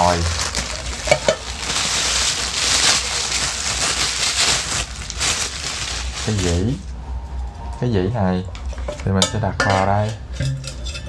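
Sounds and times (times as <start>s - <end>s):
plastic wrapping crinkling: 0.0s - 6.8s.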